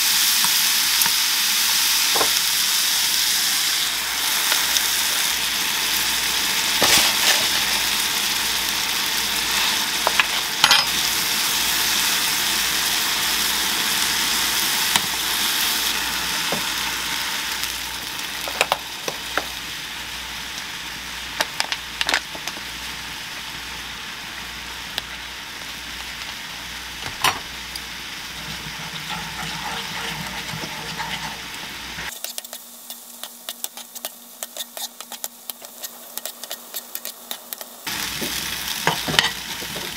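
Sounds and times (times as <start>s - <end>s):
bacon sizzling in frying pan: 0.0s - 39.9s
spoon stirring: 28.4s - 37.7s.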